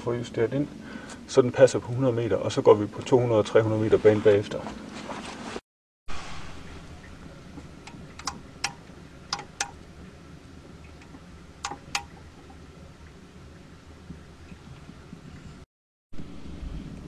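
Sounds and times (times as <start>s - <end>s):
steady low hum: 0.0s - 5.1s, 6.1s - 17.0s
sharp metallic clicks: 7.8s - 9.8s, 11.0s - 12.2s.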